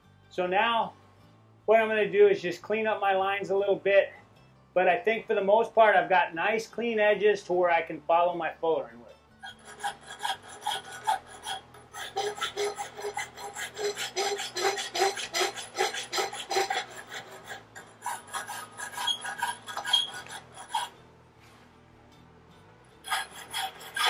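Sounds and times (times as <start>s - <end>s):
rasp scraping a metal horseshoe: 9.4s - 21.1s, 22.9s - 24.0s.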